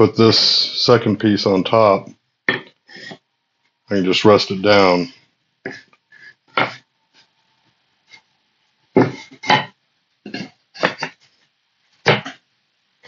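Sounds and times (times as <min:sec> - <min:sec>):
wooden knocks: 0:09.0 - 0:09.7.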